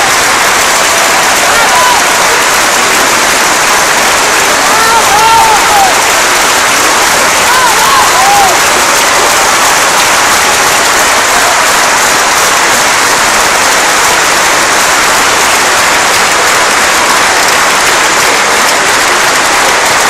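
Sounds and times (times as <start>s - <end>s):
large audience applauding: 0.0s - 20.0s.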